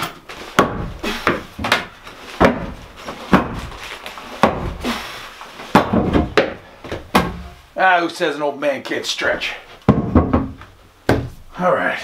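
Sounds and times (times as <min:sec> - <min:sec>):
hammer knocking on wood: 0:09.9 - 0:11.3.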